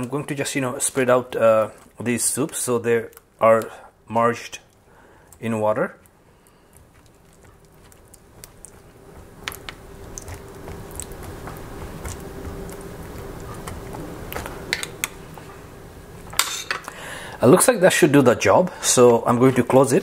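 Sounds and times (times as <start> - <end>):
faint steady hum: 0.0 - 20.0
fork stirring noodles squishing: 4.7 - 15.4.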